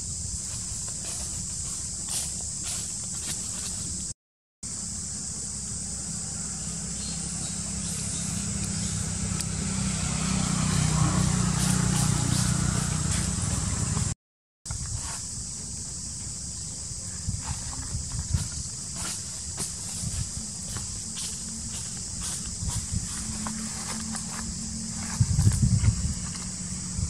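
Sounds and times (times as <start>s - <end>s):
vehicle engine rumble passing: 5.5s - 14.2s, 19.9s - 27.0s.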